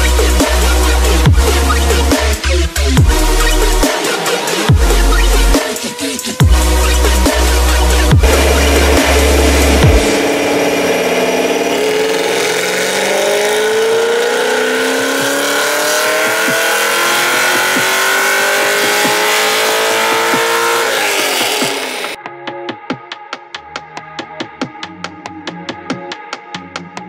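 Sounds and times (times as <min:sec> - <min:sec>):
electronic music: 0:00.0 - 0:22.2
car engine revving under load: 0:06.6 - 0:22.2.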